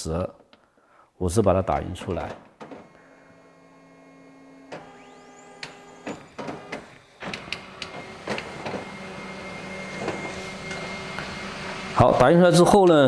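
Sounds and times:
photocopier motor hum: 2.1 - 12.2
photocopier mechanical clicks: 4.6 - 9.0.

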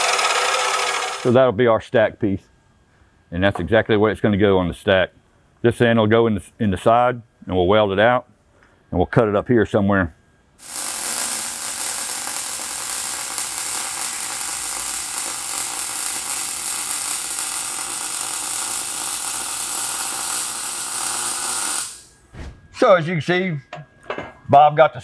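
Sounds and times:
welding arc crackling: 0.0 - 1.3, 10.6 - 22.2.

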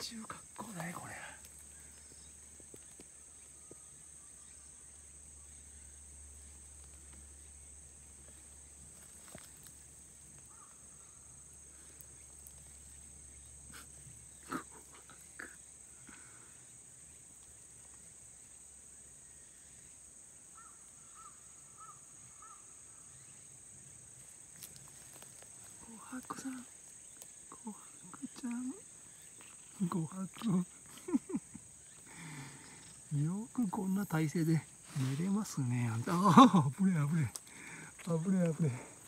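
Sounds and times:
faint chirps: 0.0 - 39.0
high-pitched insect drone: 25.8 - 39.0.

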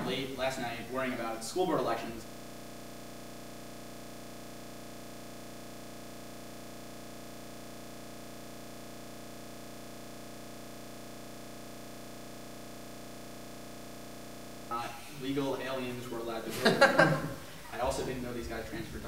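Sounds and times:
electronic buzz and hiss: 0.0 - 19.0
person speaking: 14.7 - 19.0.

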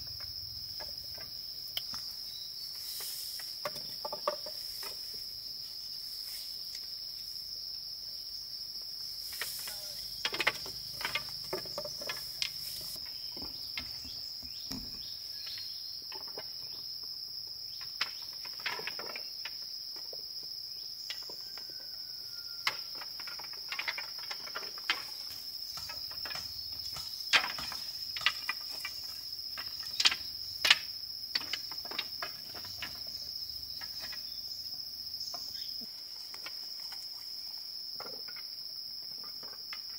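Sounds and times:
high insect chorus: 0.0 - 39.9.

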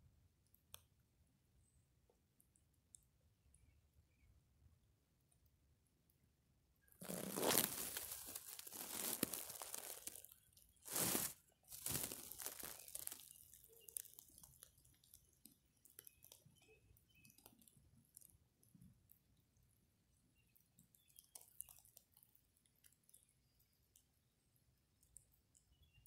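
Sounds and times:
faint scattered crackles: 0.4 - 4.4, 6.8 - 26.0
rustling and crunching on microphone: 7.0 - 15.2.

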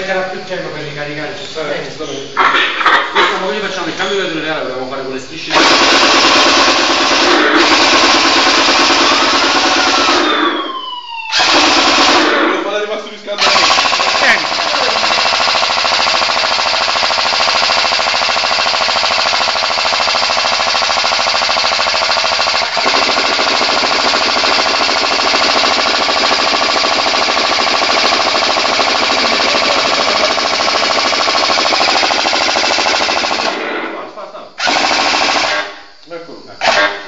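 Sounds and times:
toy machine gun mechanical rattle: 13.4 - 33.5.

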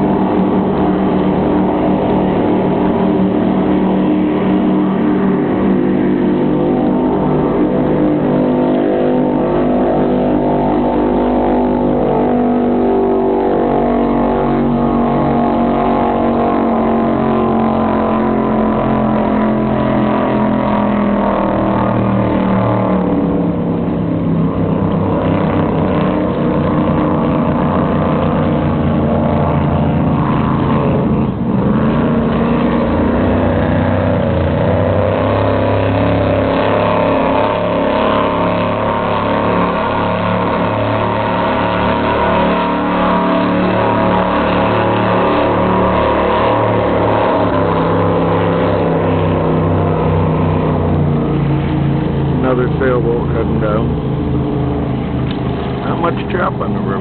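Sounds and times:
powerboat engines running hard: 0.0 - 57.0.

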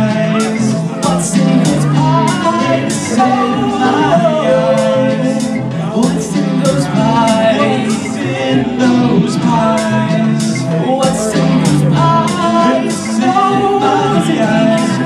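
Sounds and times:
man singing: 0.0 - 15.0
synth rock band playing: 0.0 - 15.0.

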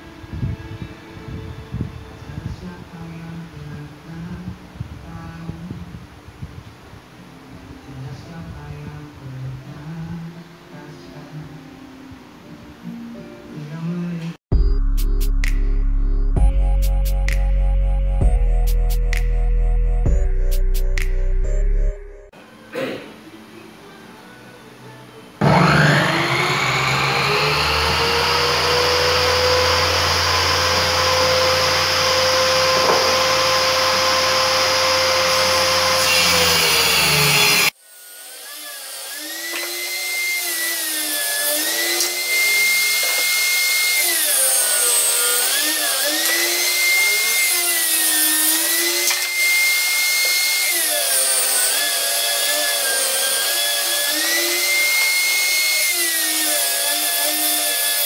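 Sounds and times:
saw blade cutting wood: 25.4 - 58.0
table saw motor whine: 25.4 - 58.0.

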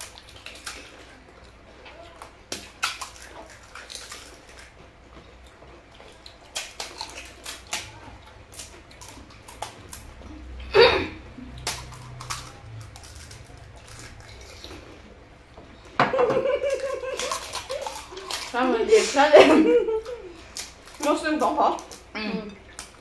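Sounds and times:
crisp shells cracking and crunching: 0.0 - 4.8, 5.9 - 10.2, 11.5 - 15.0, 16.6 - 18.6, 20.0 - 23.0.

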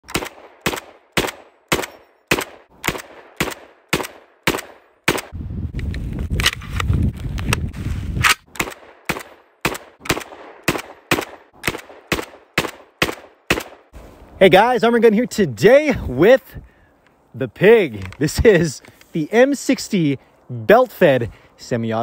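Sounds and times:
rifle single shots: 0.0 - 5.4, 8.2 - 13.9.

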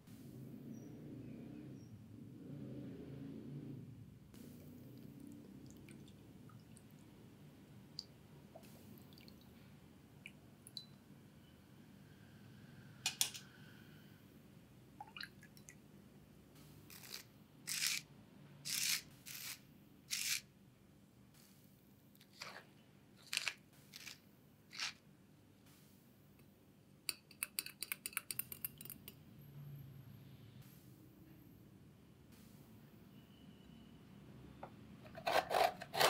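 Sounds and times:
pepper mill grinding: 16.9 - 18.0, 18.6 - 20.4, 23.2 - 25.0, 35.0 - 36.0.

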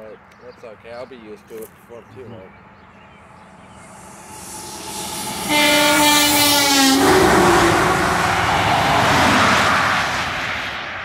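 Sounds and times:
truck rushing past: 3.2 - 11.0
truck horn blowing: 5.2 - 8.2.

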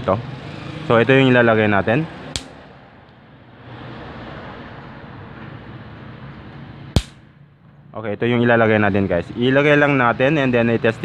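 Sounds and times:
steady background noise: 0.0 - 11.0
capacitor spark snaps: 2.4 - 2.6, 7.0 - 7.2.

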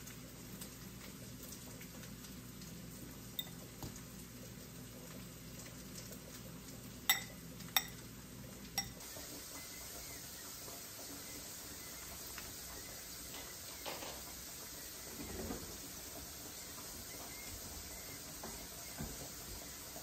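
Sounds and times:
metal utensil clinking ceramic bowl: 7.1 - 8.0.

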